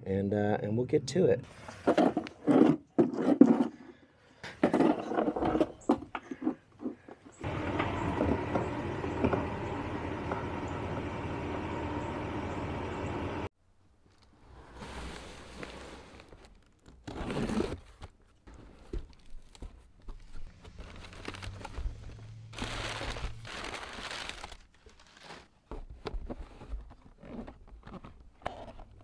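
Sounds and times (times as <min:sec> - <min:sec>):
crinkling and rustling handling: 0:14.0 - 0:29.0.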